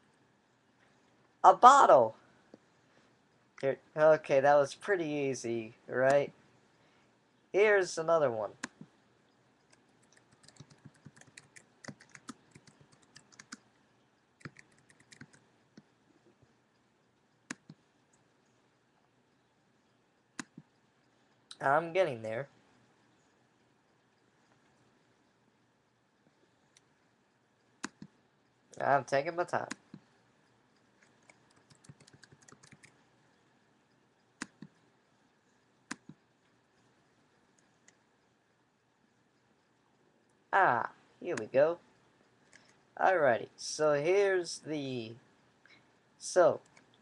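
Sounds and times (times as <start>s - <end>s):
typing on computer keyboard: 9.7s - 13.6s, 14.4s - 15.4s, 31.0s - 33.0s.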